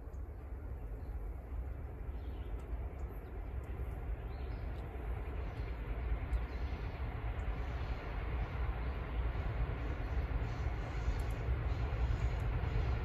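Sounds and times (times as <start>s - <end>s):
distant diesel locomotive rumble: 0.0s - 13.0s.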